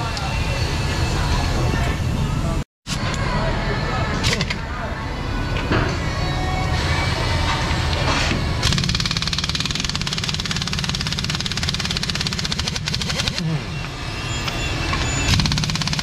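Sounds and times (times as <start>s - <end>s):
air impact wrench rattling: 8.6s - 13.4s.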